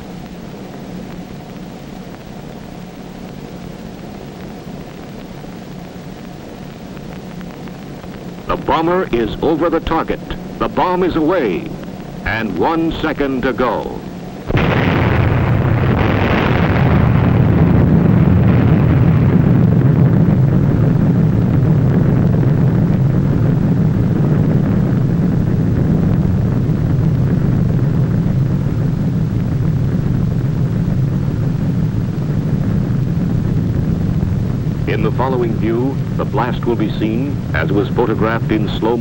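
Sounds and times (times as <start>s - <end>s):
explosion deep rumble: 14.4s - 39.0s.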